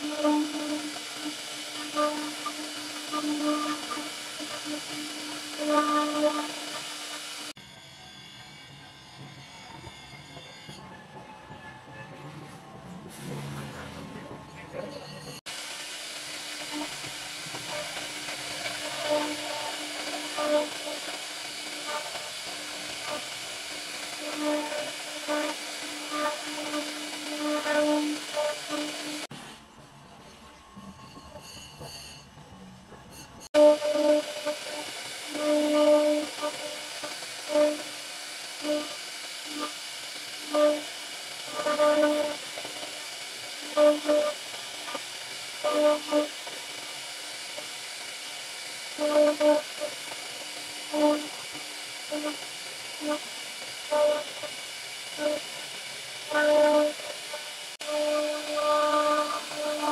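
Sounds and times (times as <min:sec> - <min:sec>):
router spindle carving wood: 0:00.0 - 0:07.6, 0:15.5 - 0:29.3, 0:33.6 - 0:59.9
cutter whining: 0:00.0 - 0:10.8, 0:15.0 - 0:29.8, 0:33.5 - 0:59.9.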